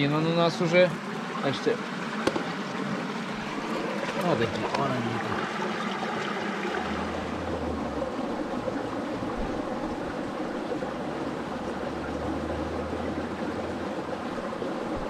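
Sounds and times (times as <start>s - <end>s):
stream water running: 0.0s - 15.0s
low rumble: 6.5s - 13.6s.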